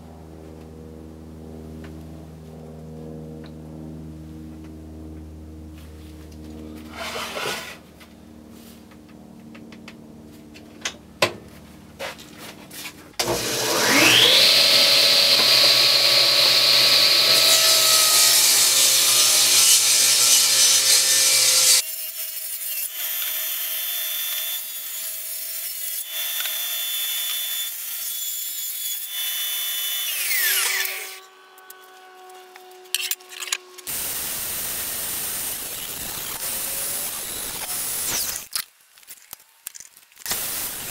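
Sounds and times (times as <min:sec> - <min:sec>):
saw ripping board: 0:06.9 - 0:07.9, 0:13.2 - 0:40.9
table saw whining: 0:13.2 - 0:38.5.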